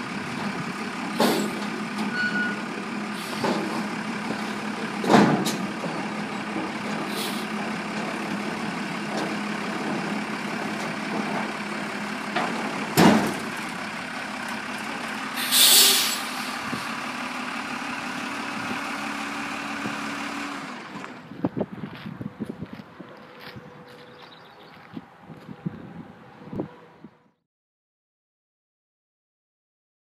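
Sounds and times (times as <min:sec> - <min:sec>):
diesel truck idling: 0:00.0 - 0:25.4
compressed air hiss: 0:15.4 - 0:16.6.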